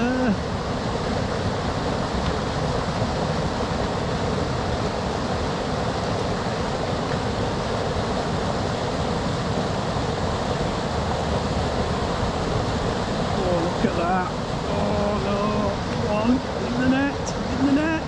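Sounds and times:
river water rushing over weir: 0:00.0 - 0:18.0.

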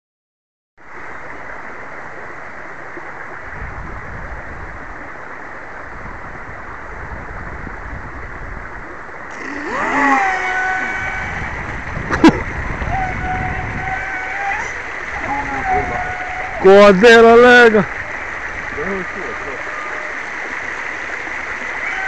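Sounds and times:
steady hiss with low rumble: 0:00.8 - 0:22.0
model boat motor whining: 0:09.3 - 0:17.0.

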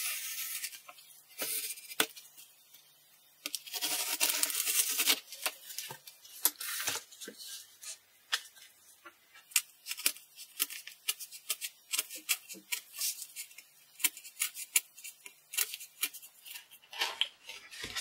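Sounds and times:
cardboard sheet rustling: 0:16.4 - 0:18.0.

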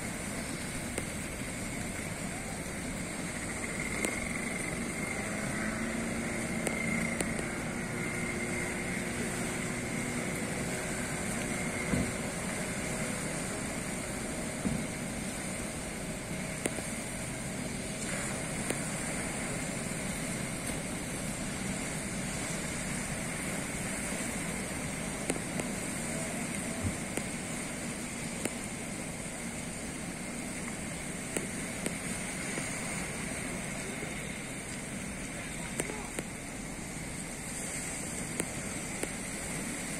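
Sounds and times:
outboard motor drone: 0:00.0 - 0:39.9
surf washing: 0:00.0 - 0:39.9
wind: 0:00.0 - 0:39.9.

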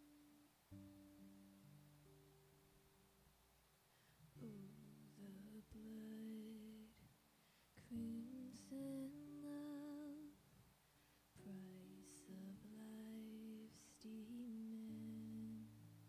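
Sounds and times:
quiet acoustic guitar: 0:00.0 - 0:16.0
woman singing a hymn: 0:04.4 - 0:07.1, 0:07.8 - 0:10.4, 0:11.4 - 0:15.8.

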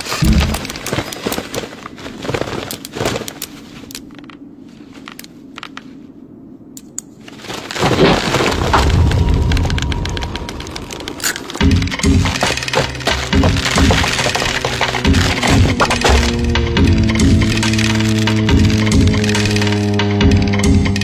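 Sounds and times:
cartoon cracks and thumps: 0:00.0 - 0:01.5
low cartoon crunching: 0:00.0 - 0:21.0.

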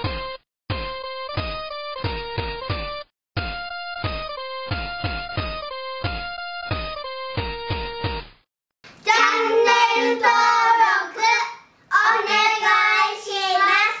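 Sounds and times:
child singing: 0:09.0 - 0:14.0.

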